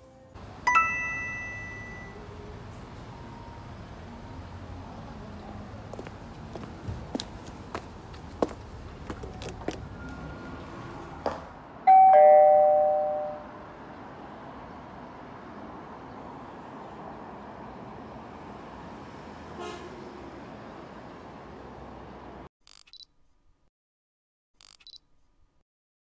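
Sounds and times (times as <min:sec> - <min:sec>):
two-note ding-dong chime: 0:00.7 - 0:02.2, 0:11.9 - 0:13.5.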